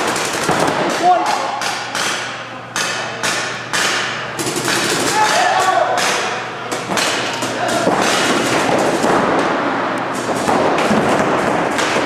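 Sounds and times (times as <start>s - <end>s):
paintball markers firing: 0.0s - 2.1s.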